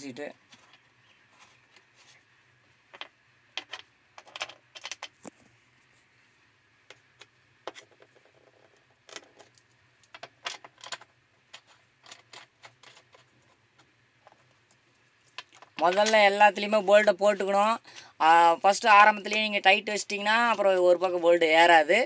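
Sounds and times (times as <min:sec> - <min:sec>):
metal bolts clicking and clinking: 0:02.9 - 0:05.2, 0:07.2 - 0:13.3.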